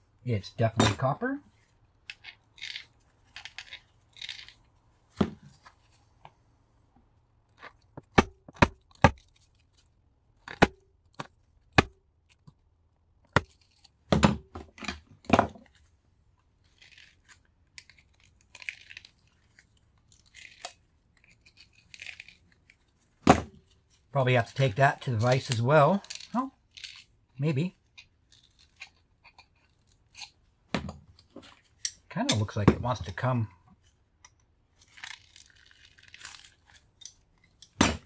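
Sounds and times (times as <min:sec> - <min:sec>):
sharp metal clicks and knocks: 0:36.7 - 0:38.0.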